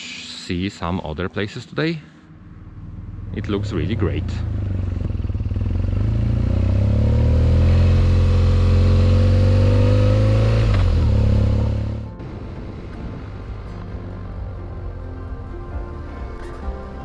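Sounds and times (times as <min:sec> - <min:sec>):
motorcycle engine accelerating: 0:02.6 - 0:14.8.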